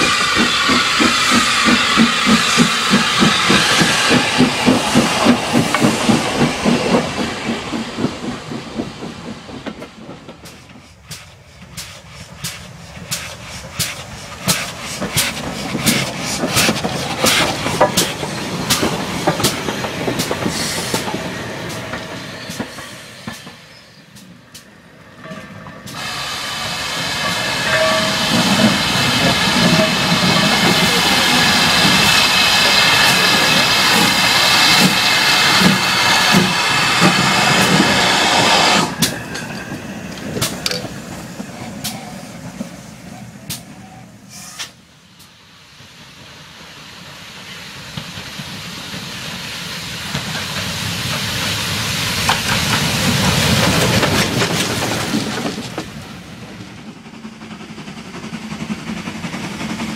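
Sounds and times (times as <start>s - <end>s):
wheels clicking over rail joints: 0.0s - 26.0s, 38.8s - 42.8s, 52.2s - 59.9s
passing steam locomotive rumble: 0.0s - 59.9s
steam hiss: 0.0s - 59.9s
steam locomotive exhaust chuffing: 0.0s - 59.9s.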